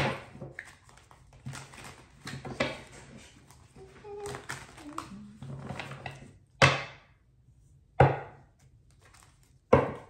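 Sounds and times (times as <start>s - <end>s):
cards knocking on wooden table: 9.7s - 10.0s.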